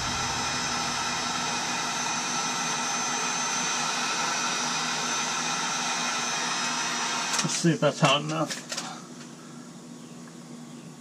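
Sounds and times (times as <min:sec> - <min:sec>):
heat gun hissing: 0:00.0 - 0:05.8
faint steady whine: 0:00.0 - 0:06.3.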